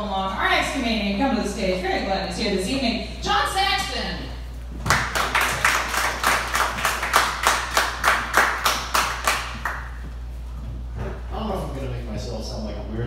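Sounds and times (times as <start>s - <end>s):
audience clapping: 4.8s - 10.1s.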